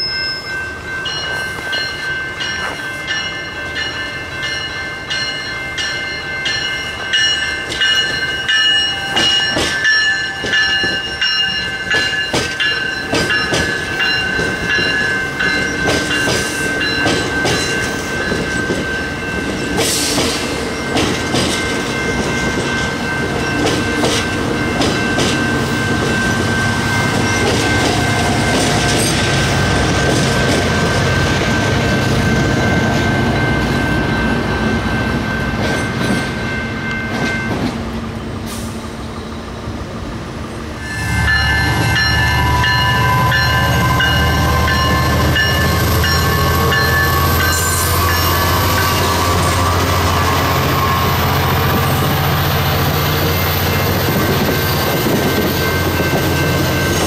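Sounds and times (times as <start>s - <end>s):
diesel locomotive engine rumble: 0.0s - 57.0s
ringing from wheels and rails: 0.0s - 57.0s
train wheels clicking over rail joints: 6.5s - 31.6s, 41.3s - 57.0s.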